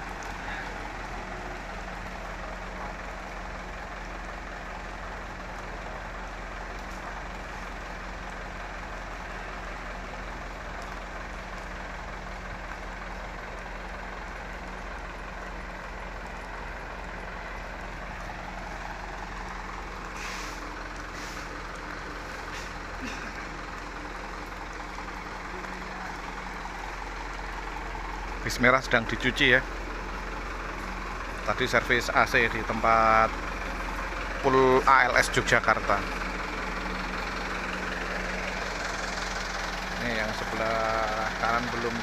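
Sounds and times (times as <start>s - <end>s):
short hiss: 20.2s - 21.5s.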